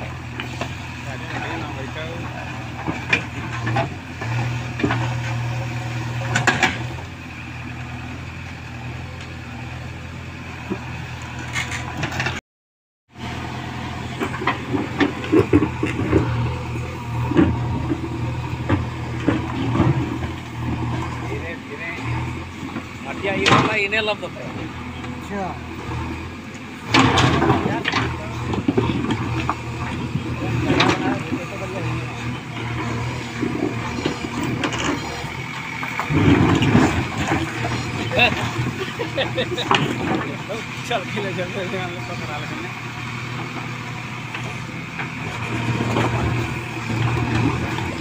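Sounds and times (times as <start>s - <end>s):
diesel engine running: 0.0s - 12.4s, 13.1s - 48.0s.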